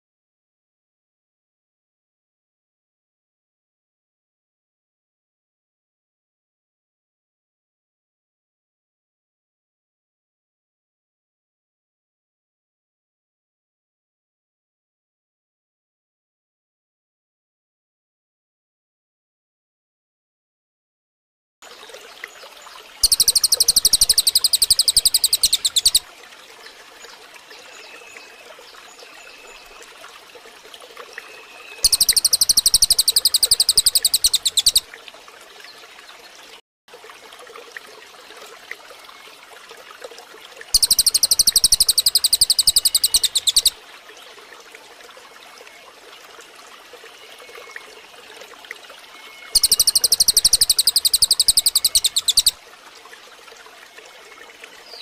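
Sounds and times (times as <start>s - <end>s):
running water: 21.6s - 55.0s
soft bird chirps: 21.8s - 26.0s, 31.0s - 34.9s, 40.8s - 43.8s, 49.2s - 52.6s
songbird rapid high notes: 23.0s - 26.0s, 31.8s - 34.8s, 40.8s - 43.7s, 49.5s - 52.5s.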